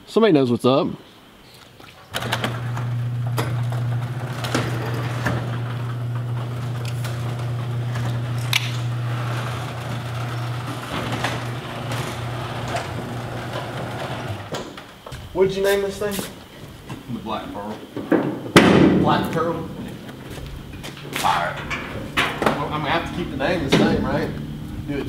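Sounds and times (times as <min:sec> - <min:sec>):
garage door opener humming: 0:02.1 - 0:15.3, 0:19.1 - 0:25.0
door panels clicking and rattling: 0:02.1 - 0:15.4, 0:18.0 - 0:25.0.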